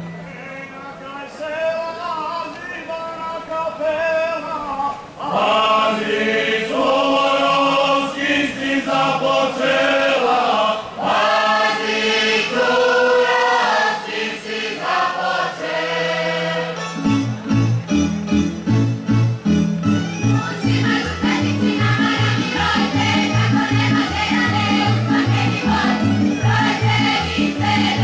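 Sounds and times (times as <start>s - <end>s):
group singing without instruments: 4.9s - 17.1s, 20.2s - 28.0s.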